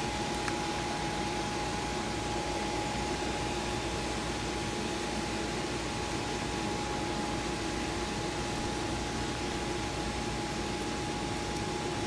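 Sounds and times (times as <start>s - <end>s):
cooling fans whirring: 0.0s - 12.0s.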